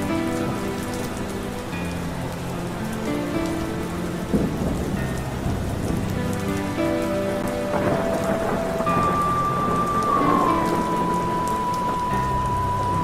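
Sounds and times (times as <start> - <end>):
rain falling steadily: 0.0 - 13.0
soft music of long notes: 0.0 - 13.0
rumble of thunder: 4.2 - 13.0.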